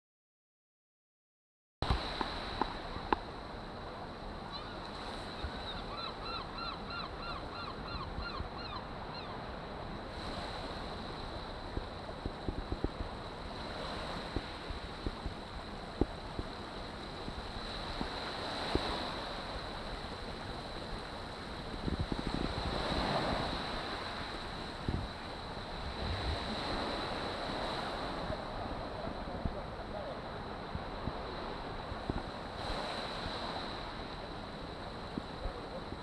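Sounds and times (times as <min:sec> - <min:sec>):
waves washing on shingle: 0:01.8 - 0:03.3, 0:11.6 - 0:29.6
bird calling: 0:04.5 - 0:04.8, 0:05.4 - 0:09.4
wind buffeting microphone: 0:10.4 - 0:33.8.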